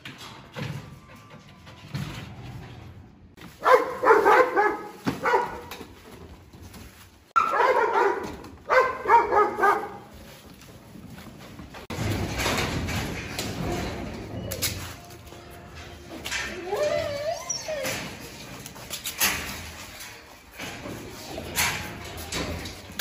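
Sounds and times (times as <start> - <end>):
dogs barking: 3.5 - 5.8, 7.4 - 10.2.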